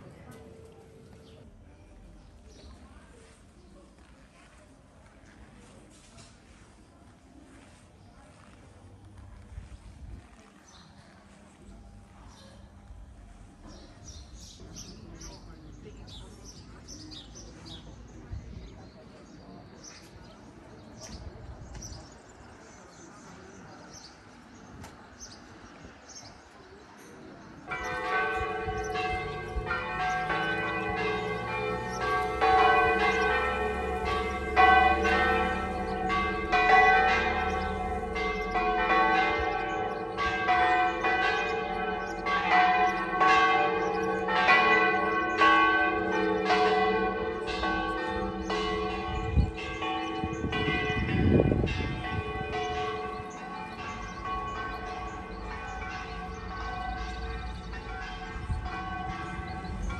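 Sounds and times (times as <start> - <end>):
church bells ringing: 0.0 - 3.2, 27.6 - 59.9.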